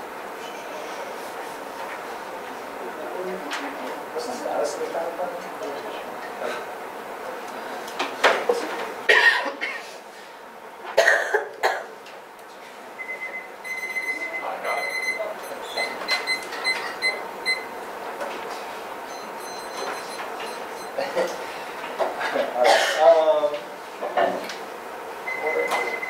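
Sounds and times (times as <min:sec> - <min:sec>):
person coughing: 0:09.1 - 0:09.9, 0:11.0 - 0:11.9, 0:22.3 - 0:23.2
electronic alarm beeping: 0:13.0 - 0:17.7, 0:19.1 - 0:21.0, 0:25.3 - 0:26.0.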